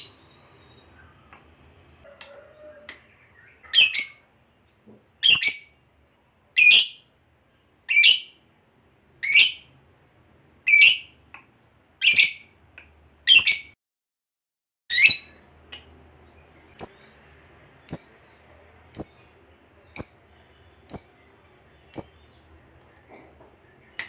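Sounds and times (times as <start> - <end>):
bird high-pitched calls: 2.3 - 4.3.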